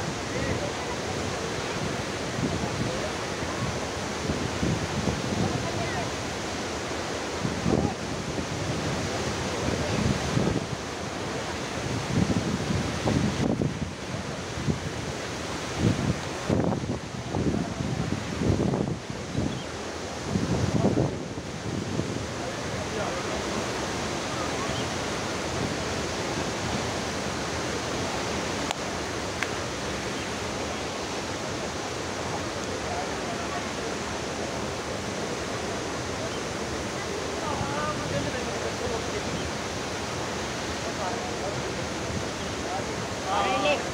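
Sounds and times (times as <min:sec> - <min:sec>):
wind buffeting microphone: 0:00.0 - 0:30.4
waterfall rushing: 0:00.0 - 0:43.9.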